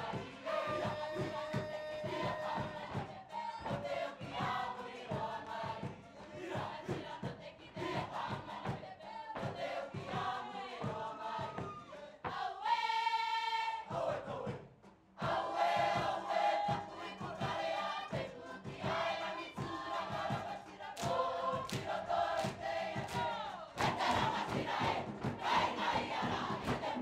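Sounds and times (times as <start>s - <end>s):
group singing in chorus: 0.0s - 27.0s
regular drum beat: 14.4s - 27.0s.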